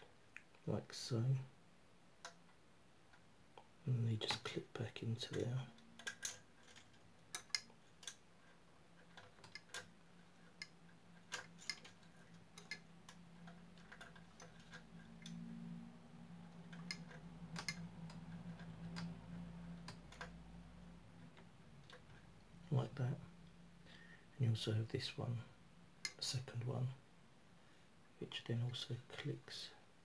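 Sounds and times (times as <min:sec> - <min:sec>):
small plastic clicks and taps: 0:16.6 - 0:20.4.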